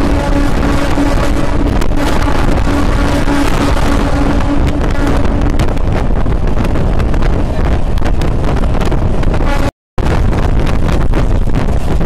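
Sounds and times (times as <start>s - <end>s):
electric train rumble: 0.0s - 12.0s
wind buffeting microphone: 0.0s - 12.0s.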